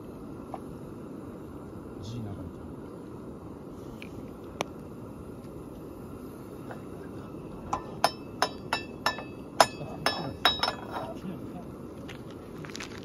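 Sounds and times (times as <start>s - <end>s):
tableware clinking: 7.7s - 11.2s.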